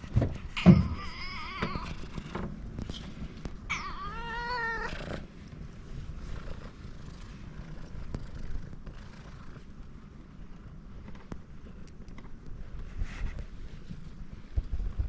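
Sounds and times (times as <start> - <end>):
cat meowing: 0.6 - 2.1, 3.7 - 5.1.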